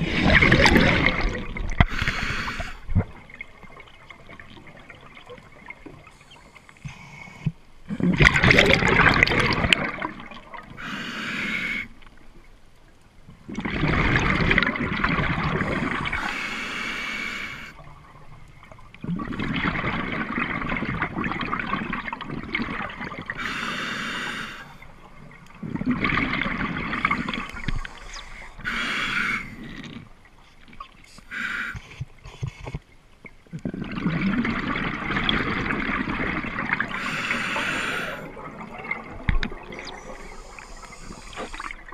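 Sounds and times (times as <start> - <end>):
exhaled bubbles gurgling underwater: 0.0 - 7.1, 7.8 - 12.3, 13.4 - 31.1, 33.3 - 41.9
hissing regulator inhalations: 1.9 - 2.8, 27.2 - 29.6, 37.0 - 38.3, 39.8 - 41.8.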